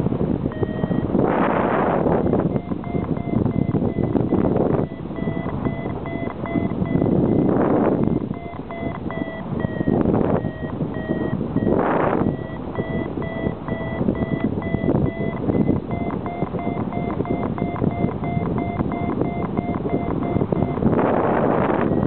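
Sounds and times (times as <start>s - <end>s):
wind on microphone: 0.0s - 22.0s
variometer beeping rapidly: 0.4s - 22.0s.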